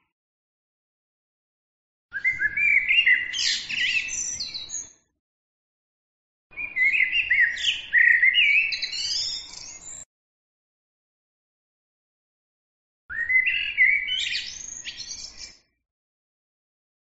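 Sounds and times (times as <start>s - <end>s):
songbird singing: 2.2s - 4.9s, 6.5s - 10.1s, 13.1s - 15.7s.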